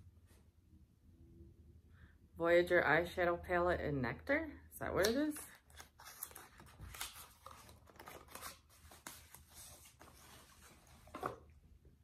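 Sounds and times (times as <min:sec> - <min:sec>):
packaging rustling and crinkling: 0:05.6 - 0:11.5.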